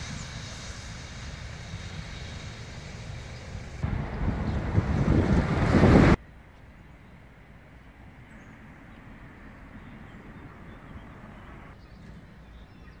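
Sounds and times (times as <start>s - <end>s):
low rumble: 3.7s - 6.2s.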